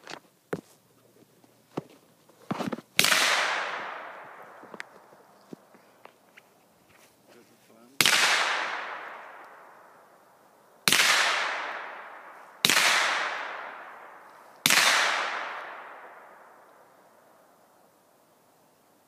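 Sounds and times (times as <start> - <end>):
gunshots: 3.0 - 4.6, 8.0 - 9.4, 10.9 - 16.4.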